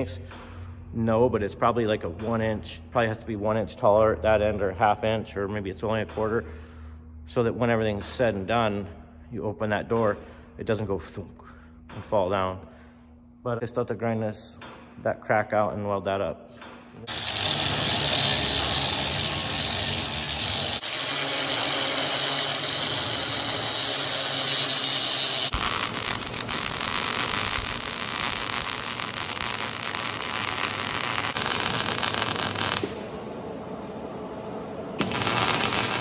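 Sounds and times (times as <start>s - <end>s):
arc welder crackling: 17.0s - 33.3s, 35.0s - 36.0s
angle grinder grinding steel: 17.1s - 32.9s.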